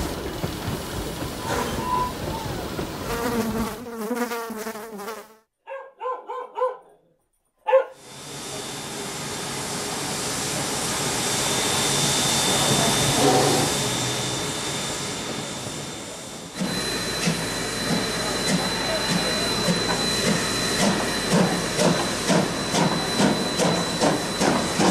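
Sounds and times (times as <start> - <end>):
steam locomotive hissing steam: 0.0 - 3.2, 8.0 - 24.9
dog barking: 5.6 - 7.0, 7.6 - 8.0.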